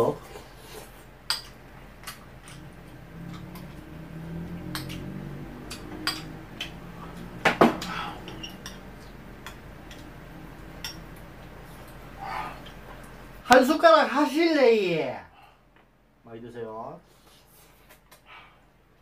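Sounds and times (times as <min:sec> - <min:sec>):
cutlery clinking on dishes: 0:04.7 - 0:06.8, 0:07.8 - 0:10.1, 0:10.8 - 0:11.2.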